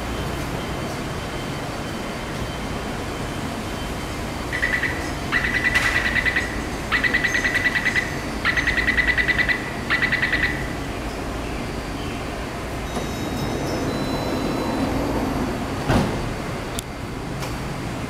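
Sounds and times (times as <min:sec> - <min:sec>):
rapid electronic door beeps: 0:12.9 - 0:15.9.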